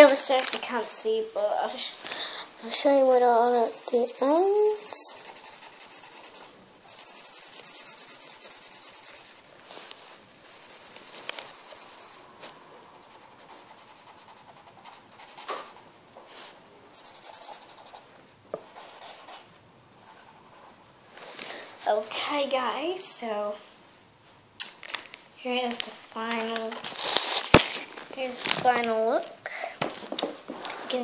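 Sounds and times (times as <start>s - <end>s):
felt-tip pen scribbling on paper: 3.3s - 9.4s, 10.4s - 12.2s, 13.0s - 15.8s, 17.0s - 18.0s.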